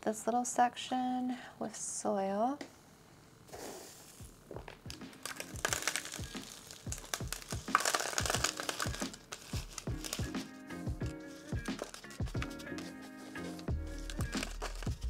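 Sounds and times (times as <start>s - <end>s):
background music with steady beat: 4.2s - 15.0s
crinkling rustling of soil: 4.9s - 10.3s.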